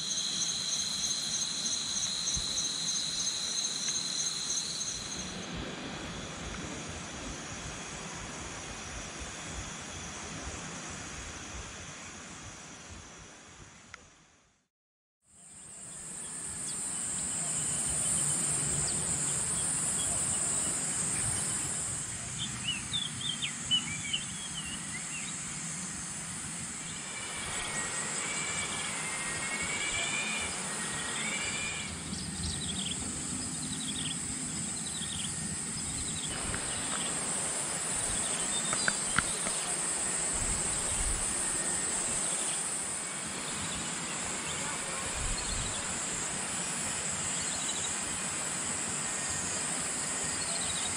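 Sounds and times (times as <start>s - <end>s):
insects chorus: 0.0s - 13.8s, 15.3s - 50.9s
birds chirping and warbling: 26.8s - 37.4s, 38.0s - 39.8s, 43.3s - 46.0s.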